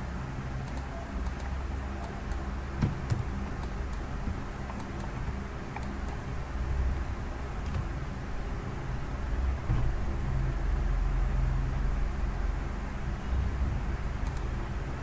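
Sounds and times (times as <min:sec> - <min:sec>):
steady low hum: 0:00.0 - 0:15.0
keyboard and mouse clicks: 0:00.6 - 0:06.2, 0:14.2 - 0:14.5.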